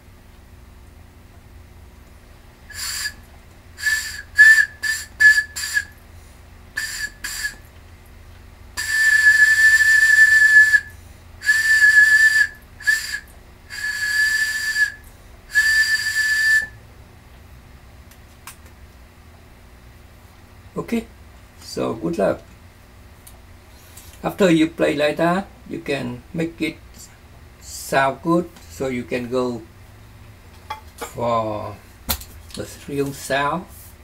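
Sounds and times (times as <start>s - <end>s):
breathy whistle blown across tube: 2.7s - 3.2s, 3.8s - 6.0s, 6.8s - 7.6s, 8.8s - 16.8s.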